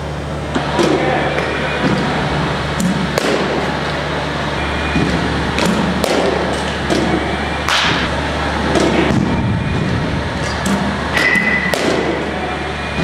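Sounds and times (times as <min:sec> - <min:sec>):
steady low hum: 0:00.0 - 0:13.0
bats hitting balls: 0:02.8 - 0:04.0, 0:04.8 - 0:13.0.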